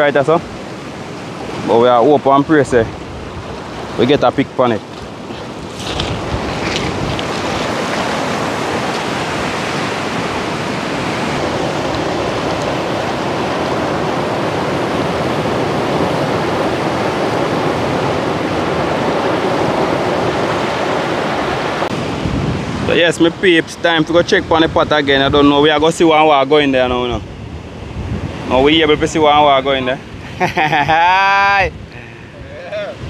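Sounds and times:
rushing water: 0.0s - 24.7s
wind: 0.0s - 33.0s.

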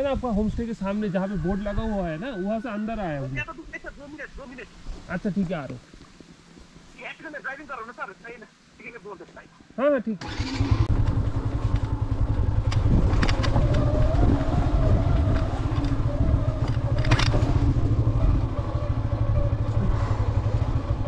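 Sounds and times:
motorcycle engine throbbing: 10.2s - 21.0s
clatter and knocks on stony track: 12.6s - 14.2s.

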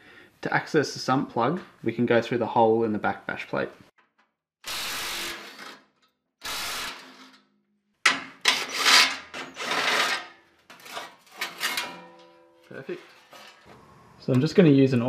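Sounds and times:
metallic scraping and clattering: 8.1s - 13.7s.

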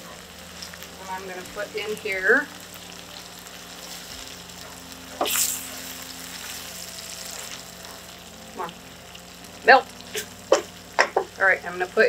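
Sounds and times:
vegetables sizzling in butter: 0.0s - 12.0s.

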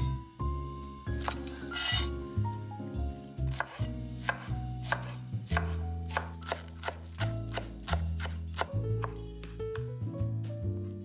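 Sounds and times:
knife chopping on cutting board: 1.2s - 2.1s, 3.5s - 9.9s.

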